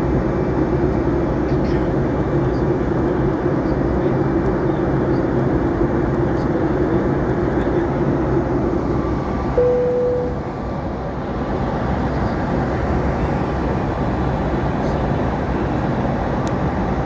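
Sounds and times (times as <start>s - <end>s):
airliner cabin engine rush: 0.0s - 17.0s
brief steady tone: 9.6s - 10.5s.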